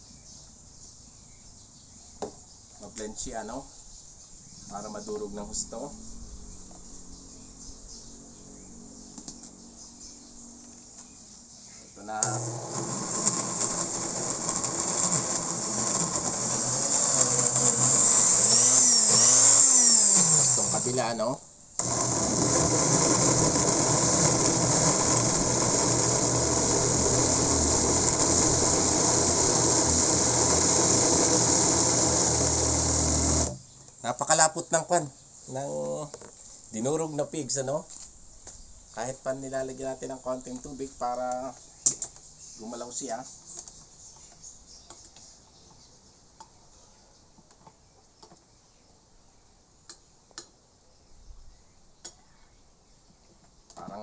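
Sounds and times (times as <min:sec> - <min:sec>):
electric blender running: 0:12.2 - 0:21.2, 0:21.8 - 0:33.6.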